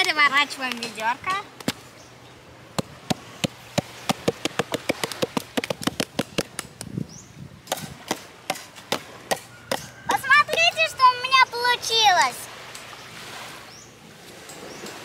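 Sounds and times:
tapping on plastic bucket: 2.8s - 6.6s.

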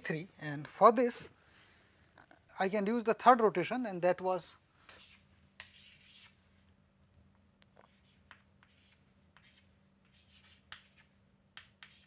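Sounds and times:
chalk tapping on blackboard: 4.9s - 6.4s, 7.7s - 12.0s
chalk scratching on blackboard: 4.9s - 6.5s, 7.8s - 12.0s.

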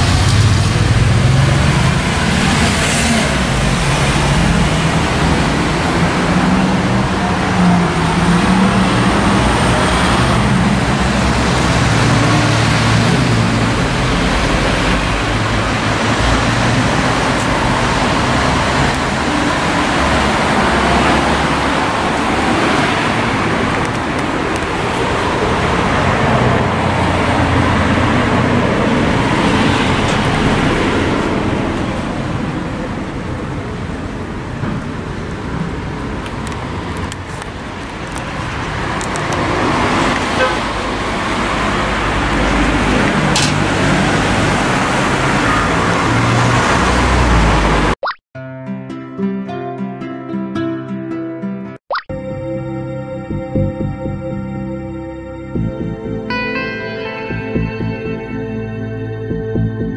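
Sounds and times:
passing vehicles: 0.0s - 48.0s, 52.2s - 59.9s
low engine hum: 52.2s - 56.4s.

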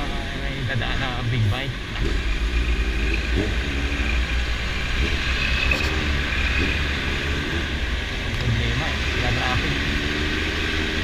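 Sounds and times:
traffic noise: 0.0s - 11.0s
motorcycle engine running: 1.8s - 10.2s.

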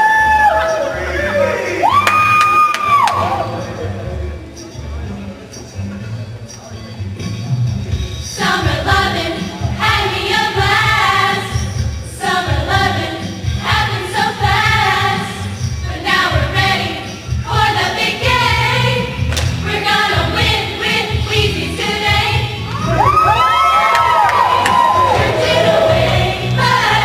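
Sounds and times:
pop music with singing: 1.3s - 27.0s.

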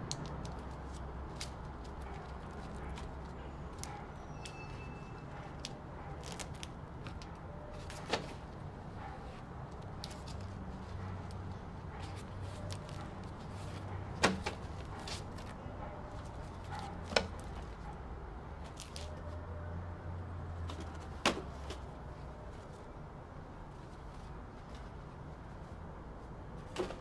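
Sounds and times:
paper rustling and light taps: 18.6s - 19.2s, 26.6s - 27.0s.

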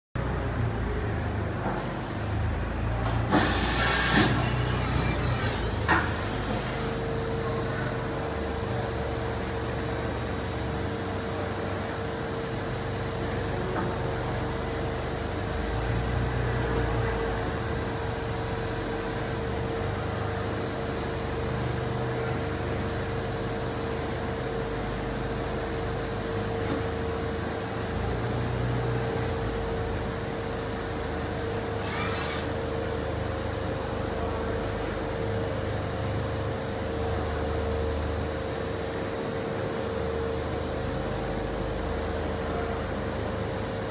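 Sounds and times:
low machine hum: 0.2s - 43.9s
machine hiss bursts: 3.3s - 7.0s, 31.8s - 32.5s
machine whine: 3.3s - 7.0s, 31.8s - 32.6s.

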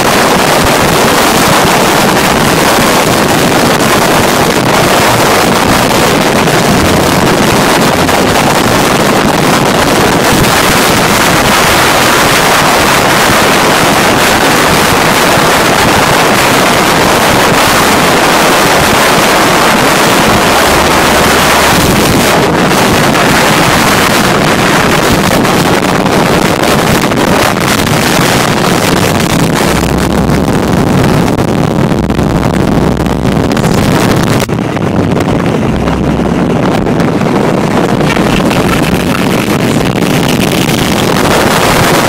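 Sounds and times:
motorcycle engine rumble: 0.0s - 42.0s
road noise: 0.0s - 42.0s
wind rushing over microphone: 0.0s - 42.0s.

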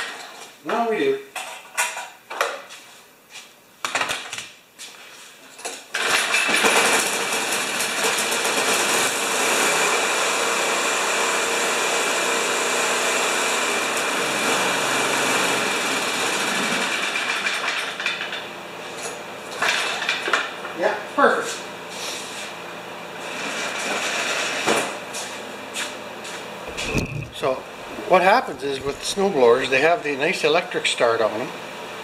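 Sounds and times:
snowblower engine running: 7.4s - 17.3s, 26.7s - 29.9s.

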